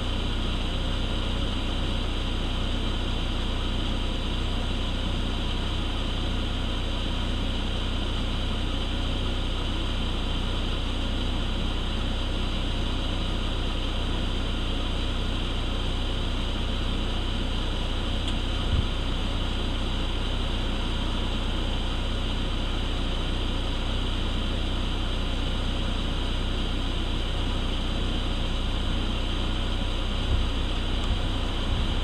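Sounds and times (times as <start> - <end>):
low hum: 28.6 - 32.0.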